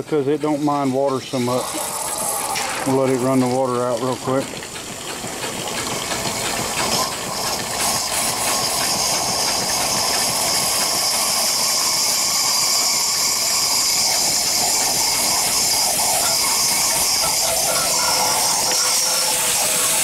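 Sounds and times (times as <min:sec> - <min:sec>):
steam engine hissing: 0:00.0 - 0:20.0.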